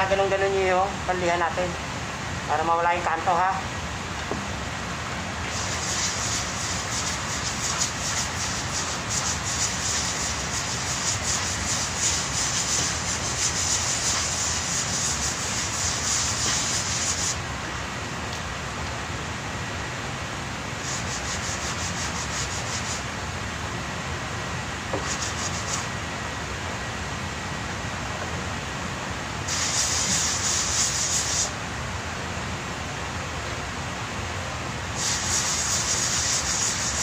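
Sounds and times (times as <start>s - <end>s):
steady background hiss: 0.0s - 37.0s
sandpaper rasping on filler: 5.5s - 17.4s, 20.8s - 23.0s, 25.0s - 25.9s, 29.5s - 31.5s, 35.0s - 37.0s.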